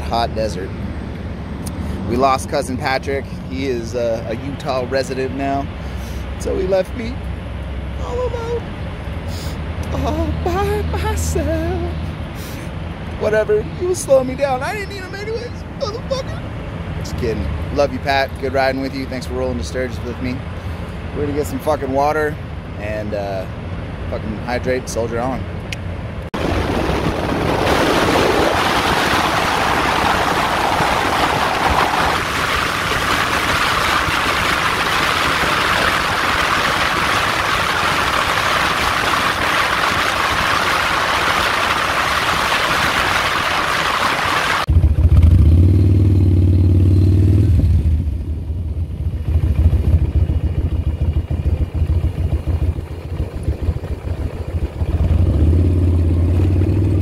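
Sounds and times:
motorcycle road noise: 0:00.0 - 0:57.0
wind rushing: 0:26.4 - 0:44.7
motorcycle engine running: 0:44.7 - 0:57.0.

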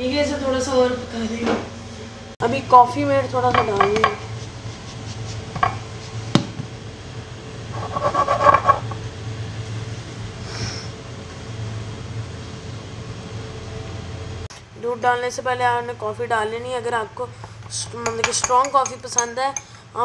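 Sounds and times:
steady low hum: 0:00.0 - 0:20.0
spatula scraping glass and mug: 0:07.8 - 0:08.9.

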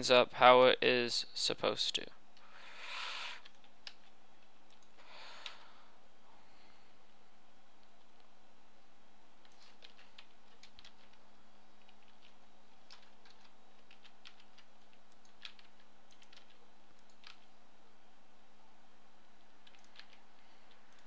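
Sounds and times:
steady low hum: 0:00.0 - 0:21.0
keyboard typing: 0:03.4 - 0:05.6, 0:09.4 - 0:11.2, 0:11.8 - 0:17.6, 0:19.4 - 0:21.0.

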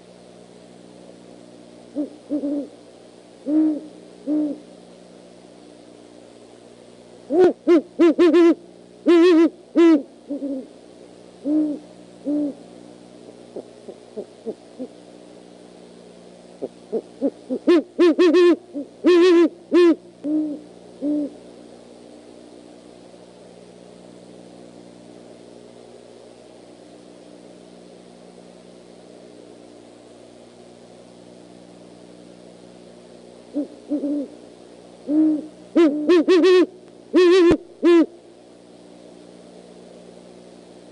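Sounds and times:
steady low hum: 0:00.0 - 0:40.9
harsh high owl calls: 0:01.9 - 0:02.8, 0:03.4 - 0:04.7, 0:07.3 - 0:10.8, 0:11.4 - 0:12.7, 0:13.5 - 0:15.0, 0:16.6 - 0:21.4, 0:33.5 - 0:38.2
owls hooting: 0:01.9 - 0:02.8, 0:03.4 - 0:04.7, 0:07.3 - 0:10.7, 0:11.4 - 0:12.6, 0:16.6 - 0:21.4, 0:33.5 - 0:34.4, 0:35.0 - 0:38.2.

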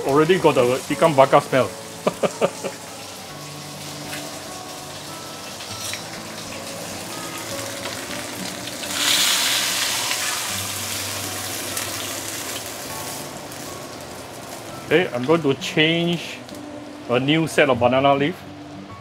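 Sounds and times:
fish sizzling in oil: 0:00.0 - 0:17.1.

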